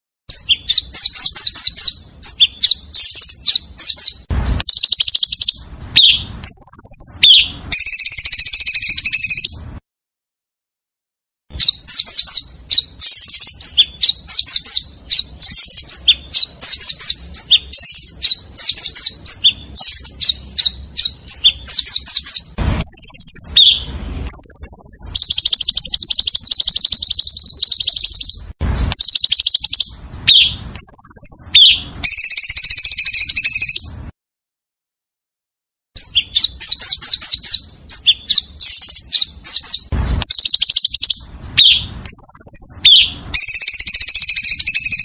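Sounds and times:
songbird singing: 0.3s - 9.8s, 11.5s - 34.1s, 36.0s - 45.0s.

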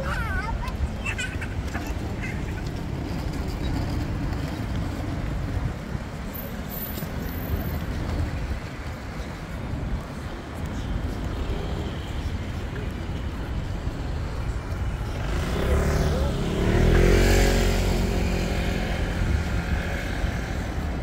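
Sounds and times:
road traffic rumble: 0.0s - 21.0s.

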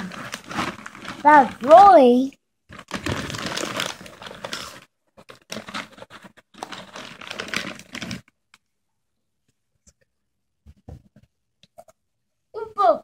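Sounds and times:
crackly rustling and crinkling: 0.0s - 8.7s.

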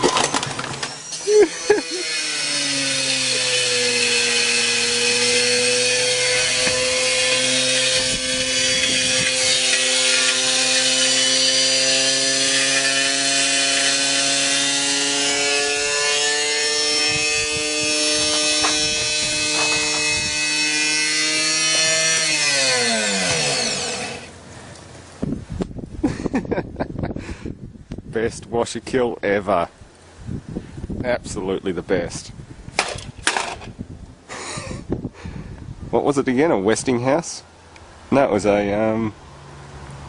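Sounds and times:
motor rattling: 0.0s - 24.4s
washing machine motor whining: 0.0s - 24.4s.

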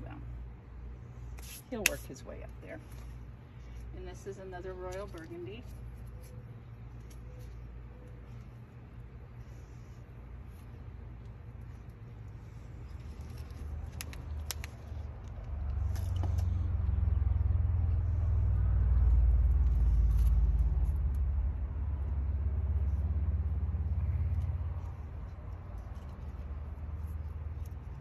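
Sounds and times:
low rumble: 8.2s - 28.0s.

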